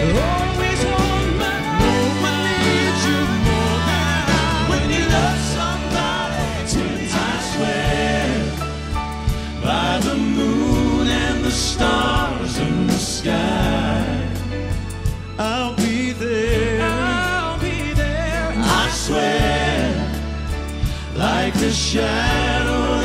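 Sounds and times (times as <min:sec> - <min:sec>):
drums with cymbal hits: 0:00.0 - 0:23.0
electric bass: 0:00.0 - 0:23.0
male vocal quartet singing: 0:00.0 - 0:23.0
piano: 0:00.0 - 0:23.0.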